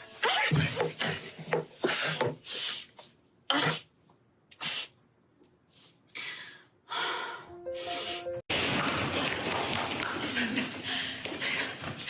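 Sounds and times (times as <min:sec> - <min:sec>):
soft background music: 0:07.5 - 0:08.5.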